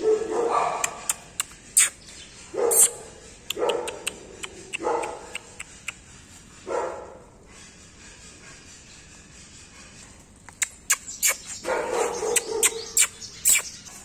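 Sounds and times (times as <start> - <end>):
puppy barking: 0.0 - 1.2, 2.6 - 5.6, 11.6 - 13.6
sharp little clicks: 0.8 - 2.0, 10.4 - 11.6.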